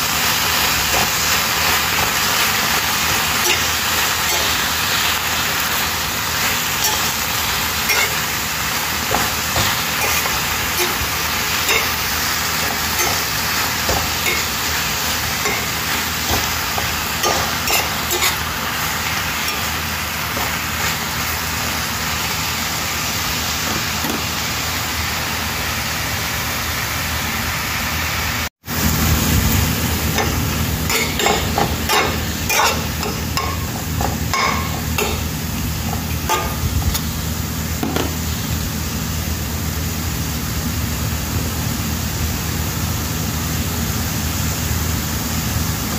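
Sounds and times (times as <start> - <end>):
spinach sizzling in a pan: 0.0 - 45.9
spatula clicking and scraping pan: 0.8 - 21.1, 30.2 - 37.1.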